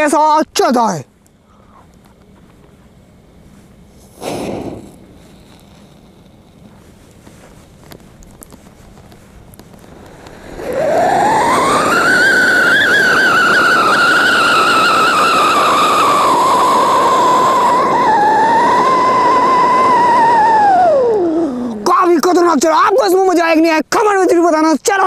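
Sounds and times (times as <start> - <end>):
spark fountain hiss: 3.9 - 20.7
firecracker whistle: 4.1 - 5.8, 9.8 - 21.7.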